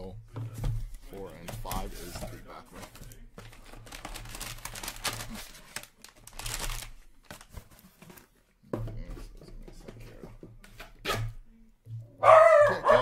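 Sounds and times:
foil packs crinkling: 0:01.5 - 0:08.2.

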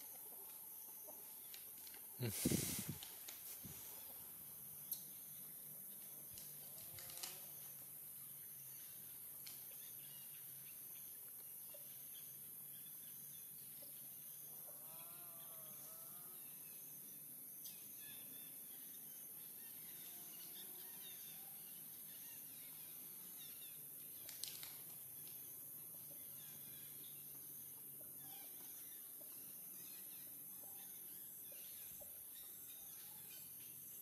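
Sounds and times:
steady high hiss: 0:02.2 - 0:05.2.

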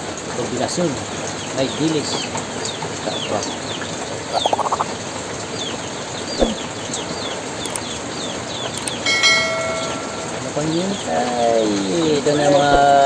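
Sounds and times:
small birds chirping: 0:00.4 - 0:13.0
brief thump: 0:06.4 - 0:06.6.

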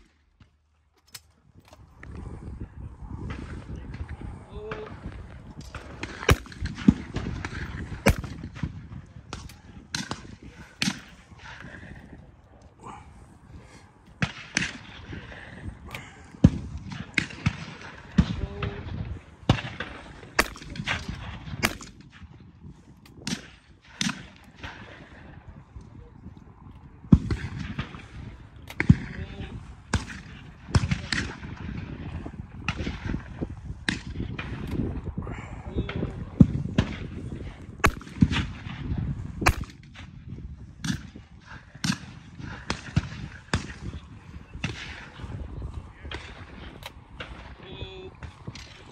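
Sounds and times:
shotgun shots with echo: 0:05.6 - 0:11.1, 0:19.5 - 0:22.0, 0:37.8 - 0:38.8, 0:39.4 - 0:40.1.

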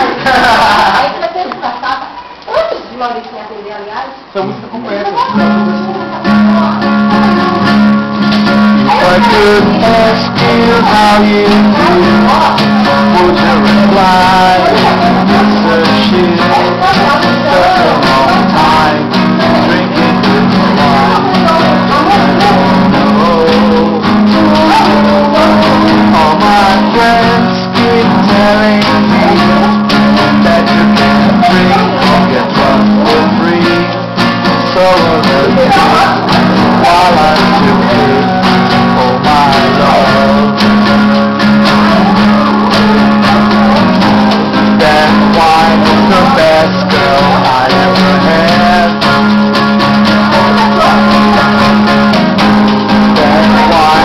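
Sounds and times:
acoustic guitar strumming: 0:00.0 - 0:02.4, 0:04.4 - 0:54.0
person singing: 0:05.2 - 0:54.0.

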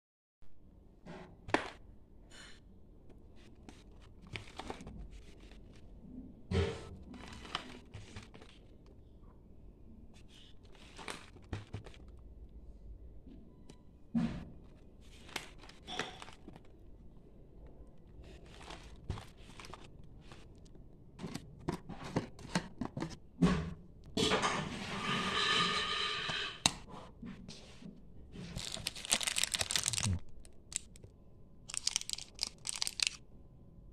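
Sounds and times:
plastic packaging crinkling and tearing: 0:18.3 - 0:20.5, 0:28.5 - 0:31.1, 0:31.7 - 0:33.2.

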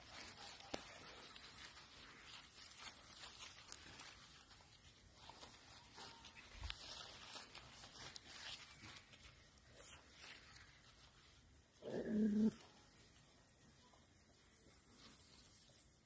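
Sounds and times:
puppies scuffling in grass: 0:00.0 - 0:16.0
puppy growling: 0:11.8 - 0:12.7.

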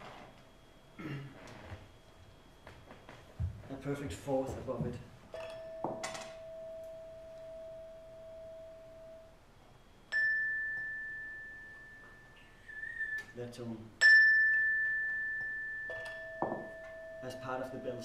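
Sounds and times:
high bright bell tone: 0:05.3 - 0:09.4, 0:10.1 - 0:12.7, 0:14.0 - 0:18.0
low ringing bell tone: 0:05.3 - 0:13.4, 0:14.0 - 0:18.0.

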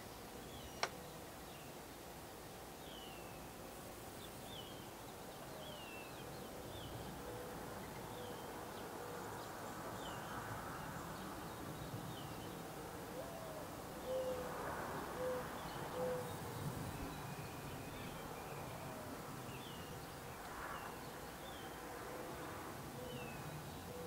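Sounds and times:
bird cooing: 0:07.2 - 0:08.4, 0:13.1 - 0:14.5, 0:15.2 - 0:16.4, 0:23.0 - 0:24.0.

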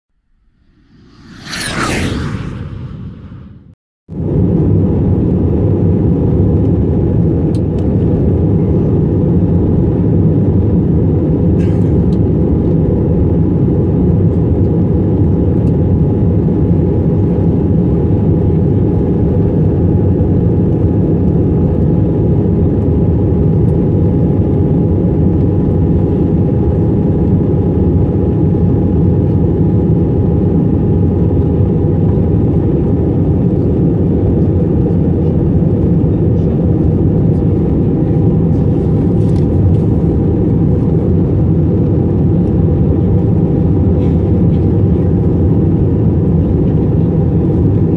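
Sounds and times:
airliner cabin roar: 0:00.4 - 0:04.4.

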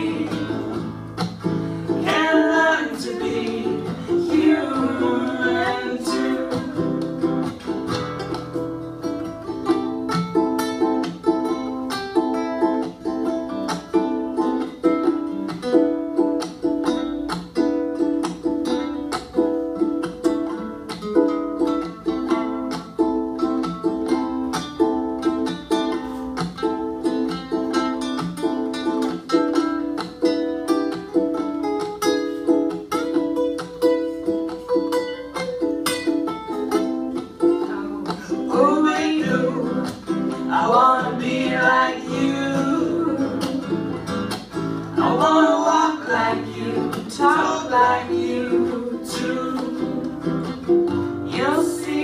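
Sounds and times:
acoustic guitars strumming: 0:00.0 - 0:52.0.

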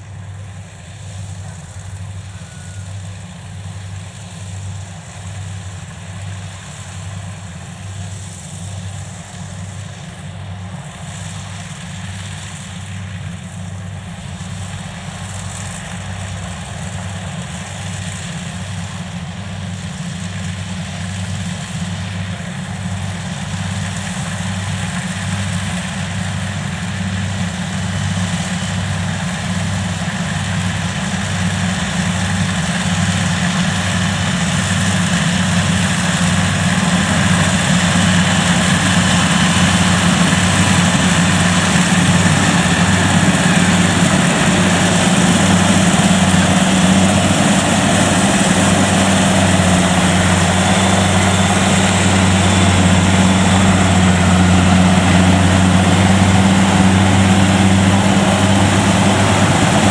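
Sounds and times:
diesel engine drone: 0:00.0 - 0:59.9
threshing machinery clatter: 0:31.5 - 0:59.9.

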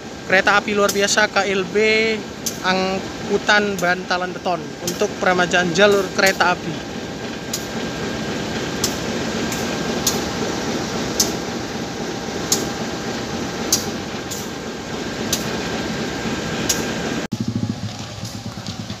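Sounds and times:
freight train wheels rumbling: 0:00.0 - 0:19.0
low engine hum: 0:00.0 - 0:19.0
light rail clicks: 0:00.8 - 0:01.2, 0:02.4 - 0:02.9, 0:03.6 - 0:10.4, 0:11.2 - 0:11.5, 0:12.5 - 0:14.6, 0:15.2 - 0:15.8, 0:16.6 - 0:17.0.

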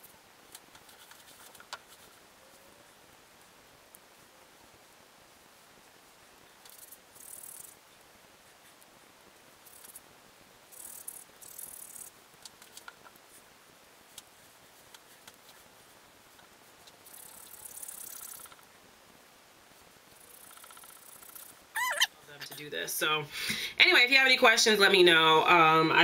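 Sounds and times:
hair rubbing between palms: 0:00.0 - 0:02.6, 0:10.7 - 0:18.6, 0:20.1 - 0:22.7.

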